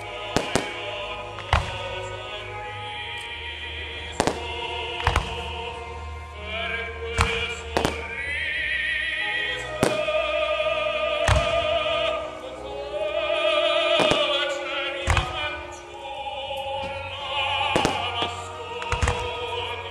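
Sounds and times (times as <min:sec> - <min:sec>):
operatic singing: 0:00.0 - 0:19.9
orchestral accompaniment: 0:00.0 - 0:19.9.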